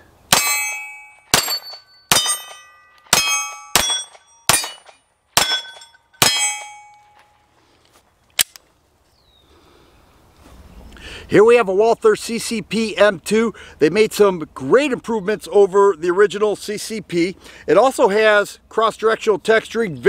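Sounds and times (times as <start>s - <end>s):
metallic ring of steel targets: 0.3s - 7.2s
pistol shots: 1.3s - 6.8s
sharp click: 8.4s - 8.7s.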